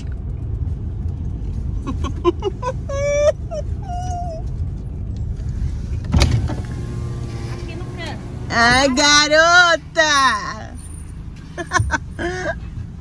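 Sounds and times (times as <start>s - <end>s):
car engine idling: 0.0s - 13.0s
dog whimpering: 2.6s - 4.5s.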